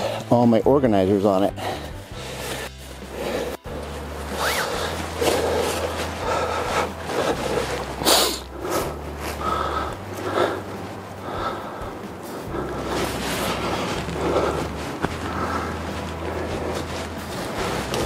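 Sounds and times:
nylon fabric rustling: 1.0s - 18.0s
zipper being drawn: 3.1s - 9.4s, 12.6s - 18.0s.

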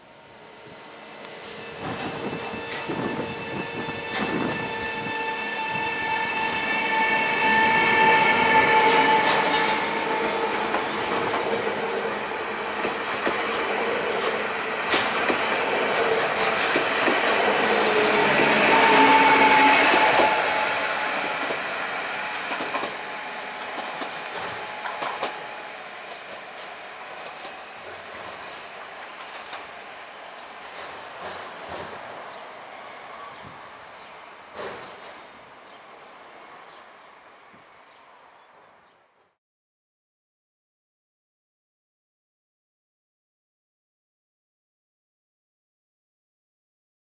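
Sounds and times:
electric train traction whine: 0.1s - 28.4s
train wheels on rail: 1.1s - 36.8s.

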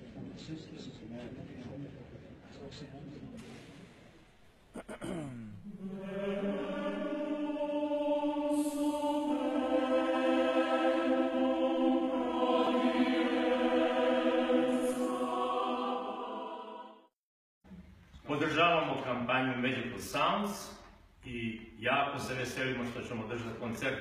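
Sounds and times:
choir singing held chords: 5.0s - 17.2s.

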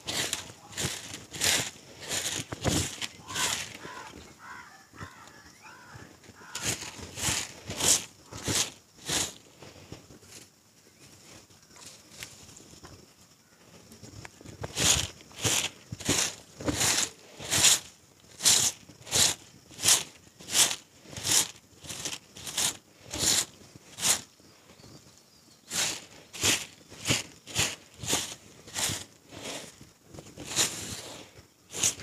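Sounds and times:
broom sweeping on earth: 0.0s - 5.1s, 6.3s - 12.8s, 13.7s - 24.9s, 25.6s - 32.0s.

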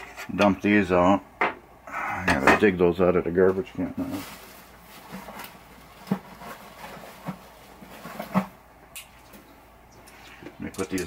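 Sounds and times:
rummaging in garbage can: 3.4s - 8.6s.

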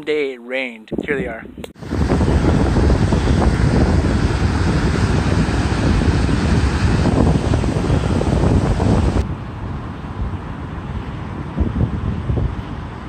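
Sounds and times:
wind buffeting microphone: 0.9s - 13.0s
flood water rushing: 1.8s - 9.2s.

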